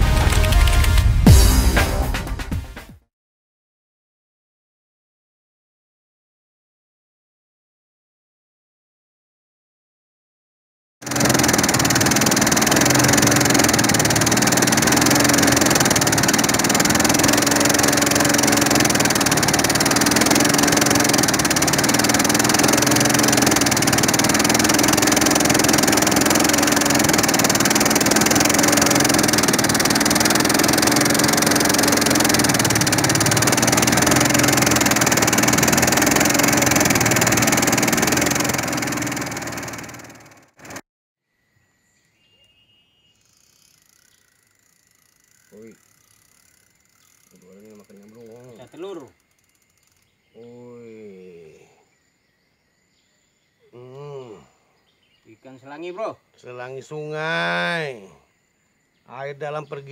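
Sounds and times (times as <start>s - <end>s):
boat engine droning: 11.0s - 40.8s.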